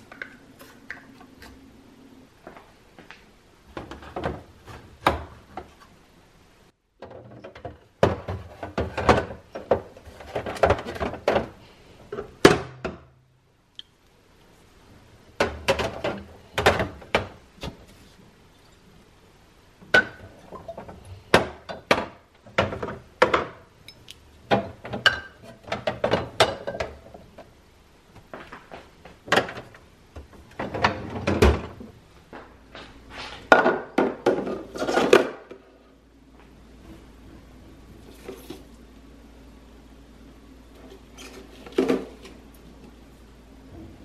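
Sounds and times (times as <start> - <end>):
faint low hum: 0.0 - 44.0
glass bottles clinking in plastic drawer: 19.9 - 27.2.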